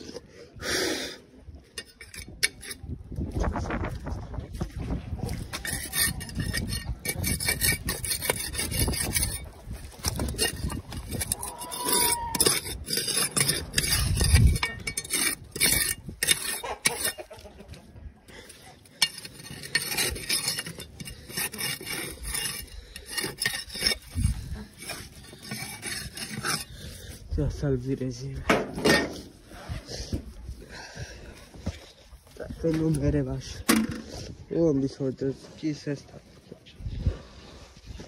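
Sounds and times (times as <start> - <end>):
dirt scraping off metal: 4.6 - 29.6.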